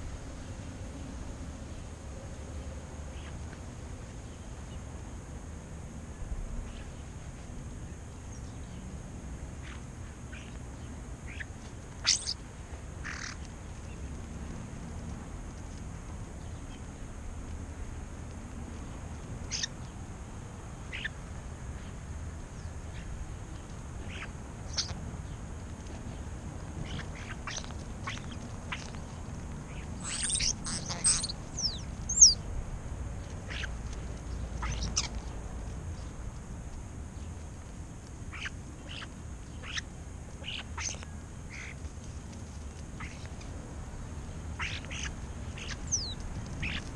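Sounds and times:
starling calls: 9.6s - 14.0s, 19.4s - 20.0s, 20.8s - 21.2s, 22.6s - 32.4s, 33.2s - 35.4s, 38.3s - 43.6s, 44.2s - 46.9s
harsh rasping bird call: 11.3s - 12.4s, 29.7s - 32.4s, 33.5s - 33.8s, 38.3s - 41.8s, 44.5s - 46.9s
loud sharp bird squeal: 11.3s - 12.4s, 19.5s - 19.7s, 30.0s - 32.4s, 33.5s - 33.7s, 34.6s - 35.2s, 38.3s - 39.8s, 40.4s - 41.8s, 44.6s - 46.9s.

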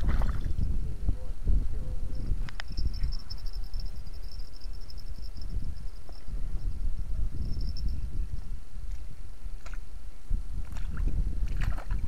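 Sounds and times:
insect chirping trill: 0.4s - 10.6s.

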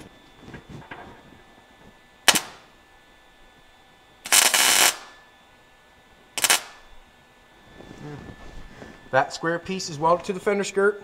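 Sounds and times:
welder crackling: 0.0s - 2.8s, 4.2s - 5.2s, 6.3s - 7.0s.

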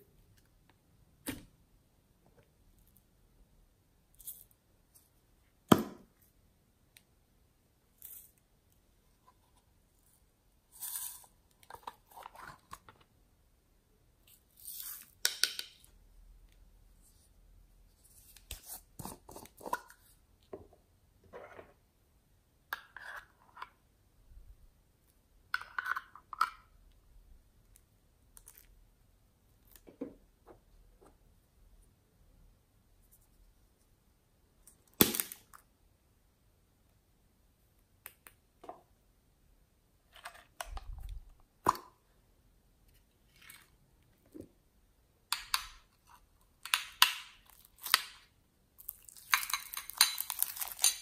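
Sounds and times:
spoon in thick slime: 8.0s - 8.4s, 9.2s - 12.8s, 45.4s - 51.0s.

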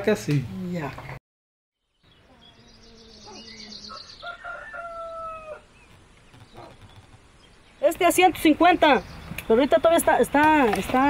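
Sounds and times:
rooster crowing: 3.8s - 5.7s.

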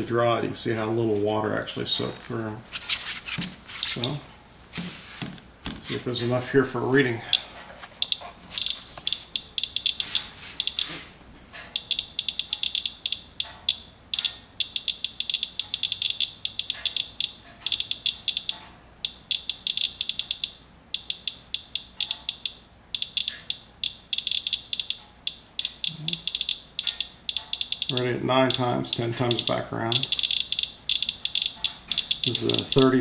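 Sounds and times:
geiger counter chirping: 7.2s - 11.0s, 11.7s - 33.0s.

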